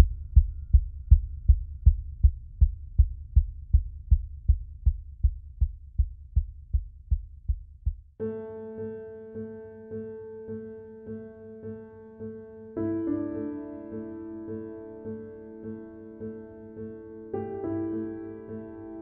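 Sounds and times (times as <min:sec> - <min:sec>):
low pulsing beat: 0:00.0 - 0:08.0
piano music: 0:08.2 - 0:19.0.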